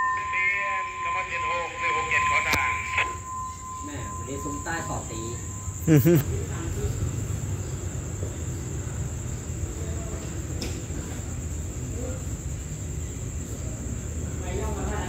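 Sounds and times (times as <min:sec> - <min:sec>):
crickets chirring: 0:00.0 - 0:15.0
snatches of voices: 0:05.8 - 0:06.2.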